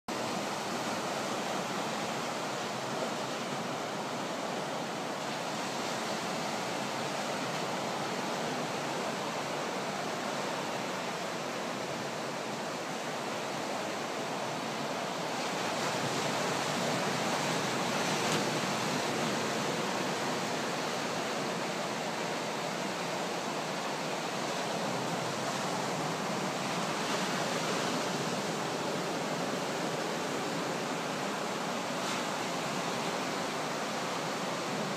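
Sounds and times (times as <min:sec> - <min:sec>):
ocean waves breaking on beach: 0:00.1 - 0:34.9.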